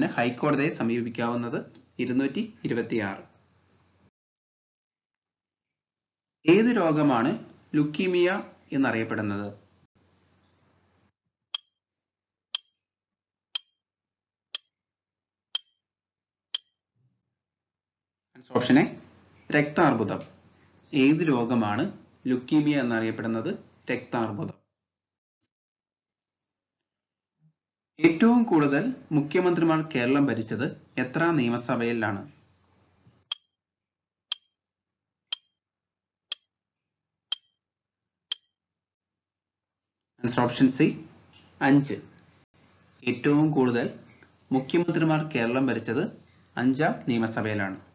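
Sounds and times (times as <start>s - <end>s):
clock-like timer ticks: 11.6s - 11.8s, 12.6s - 12.8s, 13.6s - 13.8s, 15.6s - 15.8s, 34.3s - 34.5s, 35.3s - 35.5s, 37.3s - 37.5s
clock ticks: 12.6s - 12.8s.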